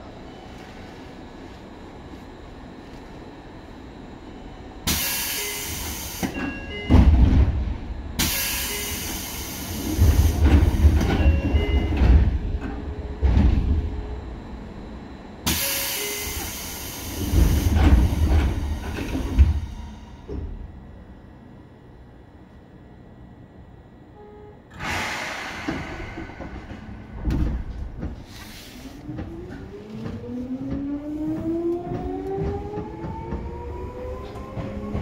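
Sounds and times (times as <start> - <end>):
electric train running: 24.7 - 35.0
heavy low rumbling and clunks: 24.8 - 35.0.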